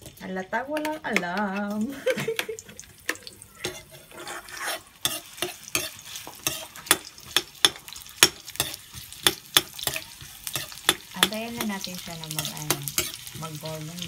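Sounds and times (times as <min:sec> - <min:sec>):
faint sizzle of frying: 0:00.0 - 0:14.0
metal spoon clinking against pan: 0:05.0 - 0:13.4.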